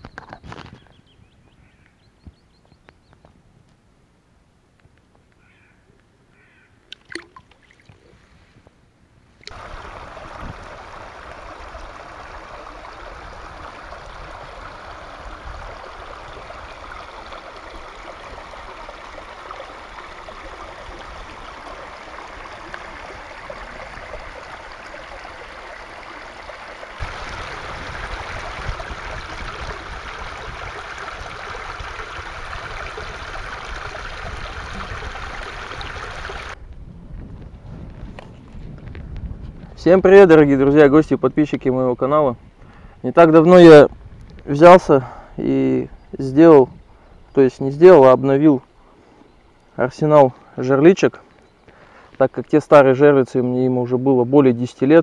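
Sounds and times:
stream running over stones: 6.9 - 8.1, 9.4 - 36.6.

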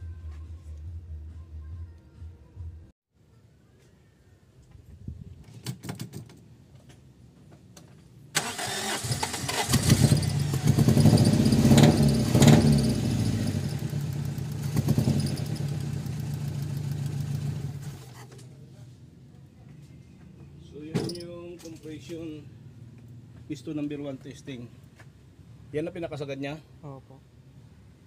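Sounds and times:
engine cranking on starter: 8.4 - 12.6.

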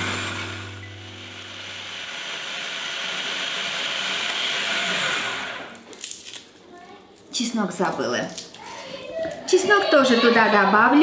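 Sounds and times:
low hum: 0.0 - 2.6
food processor blade whirring: 0.0 - 5.8.

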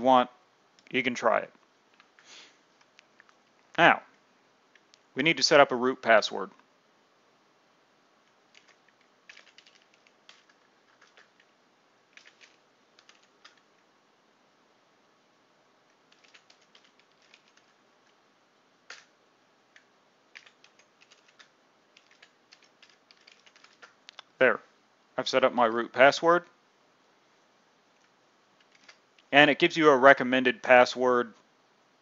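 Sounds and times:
faint keyboard typing: 8.2 - 13.9, 15.9 - 18.2, 18.8 - 19.1, 19.7 - 24.3, 27.9 - 29.3.

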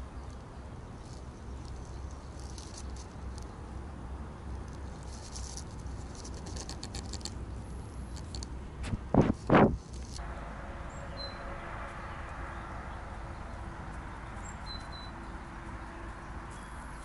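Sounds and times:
steady low rumble: 7.0 - 17.0.

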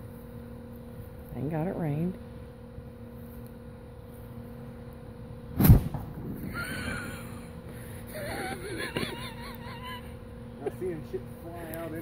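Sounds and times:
sharp explosion: 5.5 - 7.3
low rumble: 5.6 - 7.8.

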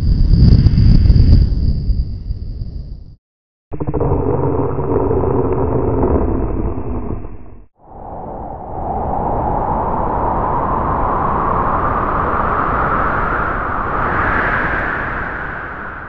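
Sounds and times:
rising rush of wind-like noise: 3.8 - 16.0.

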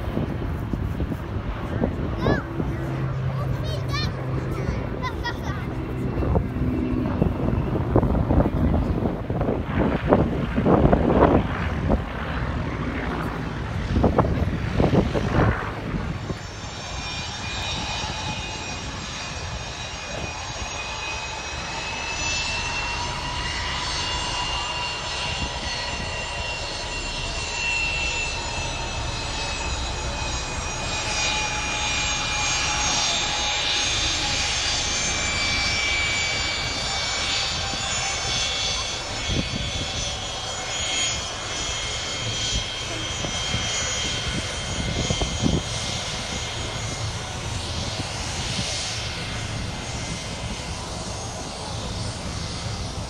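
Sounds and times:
loud low rumbles: 0.0 - 40.5
aircraft engine drone and whine: 0.0 - 53.0.

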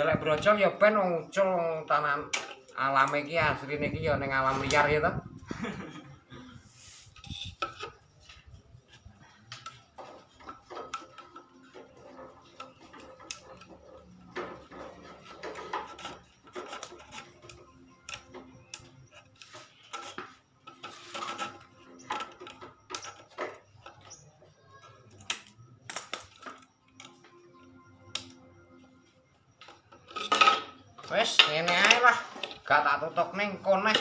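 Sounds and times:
rods rubbing against wood: 6.6 - 25.1.

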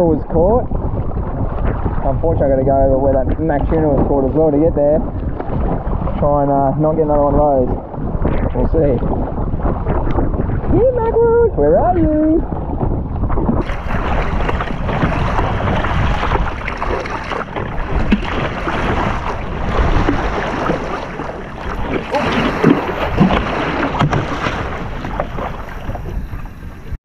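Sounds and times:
water splashing against kayak hull: 0.0 - 27.0
wind on microphone: 0.0 - 27.0.

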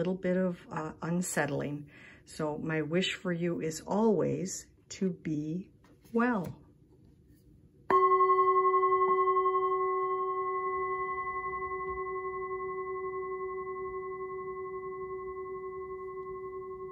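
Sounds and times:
metal singing bowl ringing: 7.9 - 16.9.

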